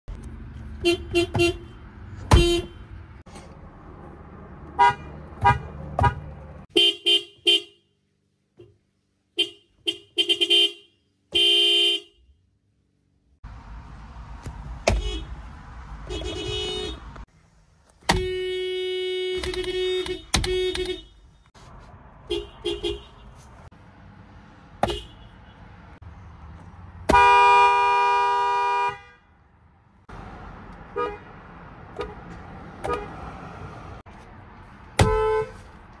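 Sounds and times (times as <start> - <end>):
car horns honking: 0.7 - 3.2, 4.7 - 8.0, 9.3 - 12.4, 14.8 - 17.3, 18.0 - 21.6, 22.2 - 23.7, 24.7 - 25.8, 27.0 - 29.4, 30.8 - 33.3, 35.0 - 35.8.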